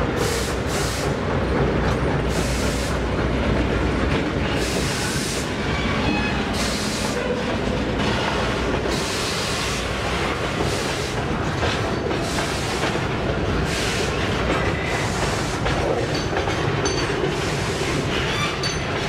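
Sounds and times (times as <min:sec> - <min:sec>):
rushing hiss from wheels: 0:00.0 - 0:01.3, 0:02.2 - 0:03.1, 0:04.5 - 0:05.6, 0:06.4 - 0:07.2, 0:08.4 - 0:16.0, 0:17.2 - 0:18.3
low diesel locomotive rumble: 0:00.0 - 0:19.0
train wheels clattering over rails: 0:00.0 - 0:19.0.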